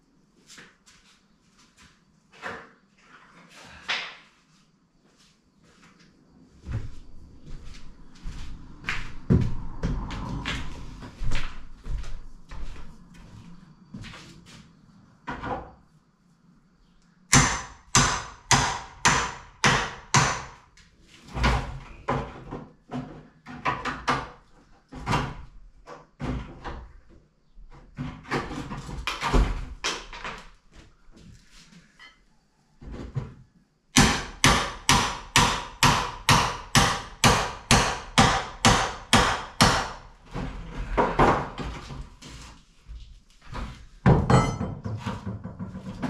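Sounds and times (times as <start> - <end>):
hammer striking wooden door frame: 17.3 - 20.6, 34.0 - 40.1.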